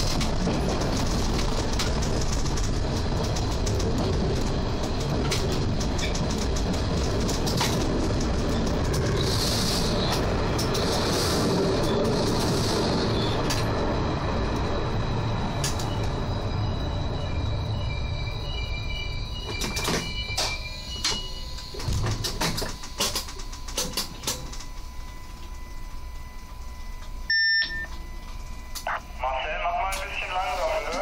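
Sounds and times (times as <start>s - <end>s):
railcar rumbling on rails: 0.0s - 31.0s
faint high squeal: 15.0s - 22.0s.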